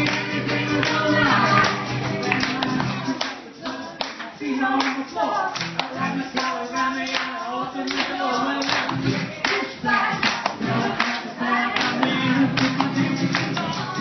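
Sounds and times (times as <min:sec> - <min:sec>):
acoustic guitar: 0:00.0 - 0:14.0
people clapping along: 0:00.0 - 0:14.0
person singing: 0:00.0 - 0:14.0.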